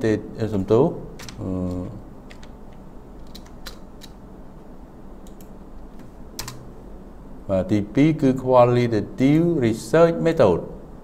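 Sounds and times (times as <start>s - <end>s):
low room hum: 0.0s - 11.0s
keyboard keystrokes: 1.2s - 2.6s, 3.2s - 4.2s, 5.2s - 6.7s.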